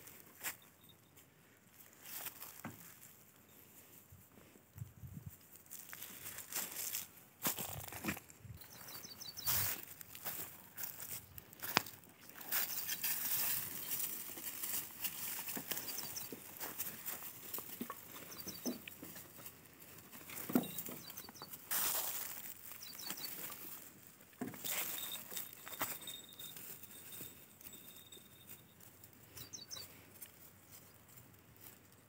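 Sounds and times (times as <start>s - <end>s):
goats rustling in dry grass: 0.0s - 32.0s
small bird chirping: 8.5s - 9.8s, 15.7s - 16.6s, 18.1s - 19.0s, 20.6s - 22.1s, 22.7s - 23.6s, 27.7s - 30.0s.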